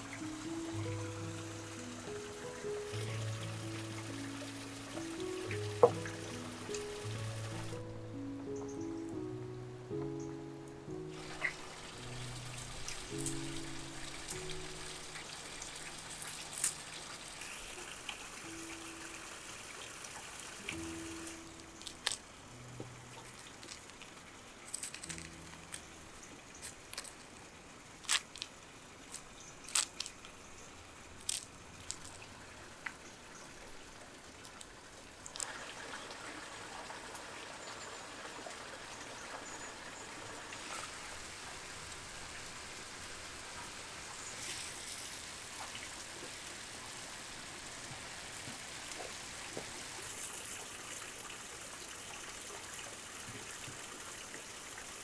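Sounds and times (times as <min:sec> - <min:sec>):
trickling hiss: 0:00.0 - 0:55.0.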